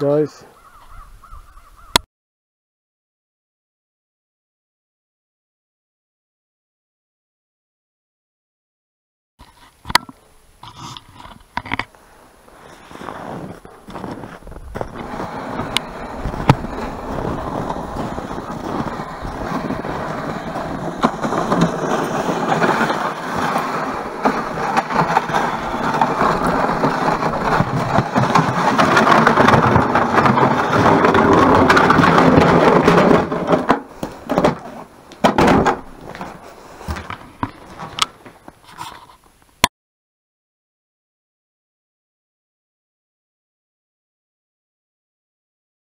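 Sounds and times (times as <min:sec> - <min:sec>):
sled runners scraping over snow: 0:10.6 - 0:39.3.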